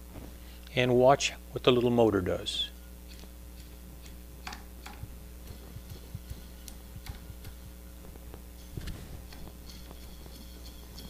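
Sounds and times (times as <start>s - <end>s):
small motor ticking and clicking: 3.1s - 7.8s.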